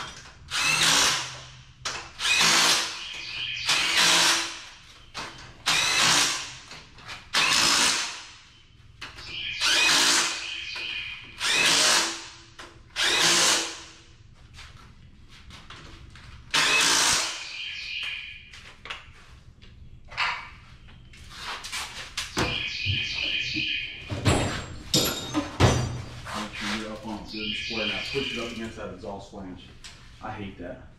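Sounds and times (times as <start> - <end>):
cordless drill bursts: 2.2 - 3.0, 5.6 - 6.5, 9.6 - 10.4, 11.4 - 12.2, 13.0 - 13.8, 16.5 - 17.4.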